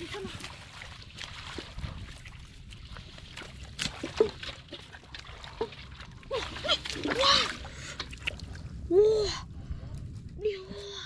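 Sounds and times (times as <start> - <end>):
hands sloshing in muddy water: 0.0 - 8.8
water splashes: 0.0 - 8.8.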